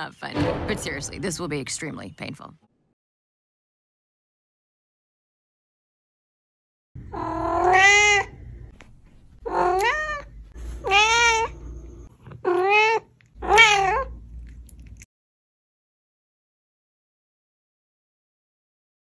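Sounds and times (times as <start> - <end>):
cat meowing: 7.1 - 8.4, 9.4 - 11.6, 12.3 - 14.2.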